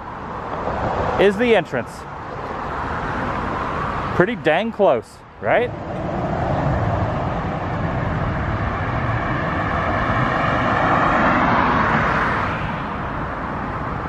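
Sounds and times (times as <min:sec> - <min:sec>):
vehicle passing: 0:05.4 - 0:14.0
low rumble: 0:05.5 - 0:12.0.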